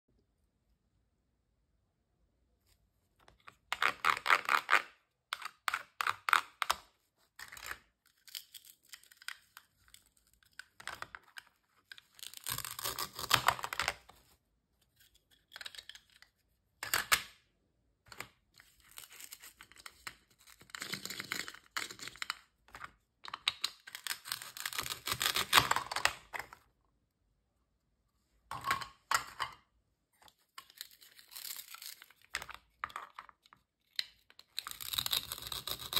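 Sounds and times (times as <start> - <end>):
velcro ripping open: 12.2 - 13.9, 24.0 - 25.8, 34.6 - 35.9.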